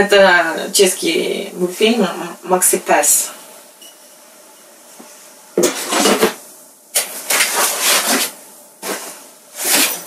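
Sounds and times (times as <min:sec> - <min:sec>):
rustling of handled things: 0:07.0 - 0:10.0.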